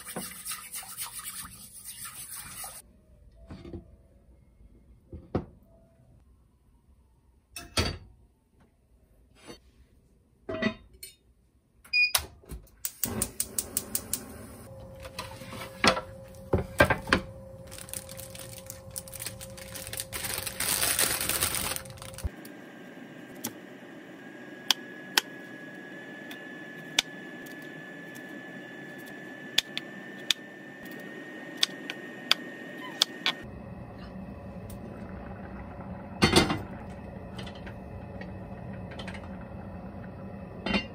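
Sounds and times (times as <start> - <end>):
plastic bag crinkling: 17.6 - 22.3.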